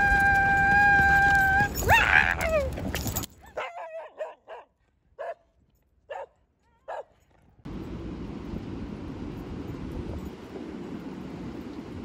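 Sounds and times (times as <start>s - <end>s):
small dog barking: 3.6s - 5.5s, 6.1s - 7.1s
street noise: 7.7s - 12.0s.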